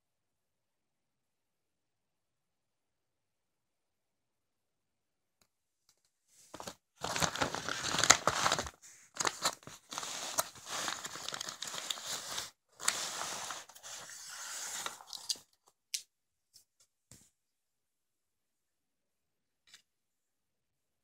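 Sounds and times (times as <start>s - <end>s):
plastic wrapping crinkling and tearing: 6.5s - 14.2s.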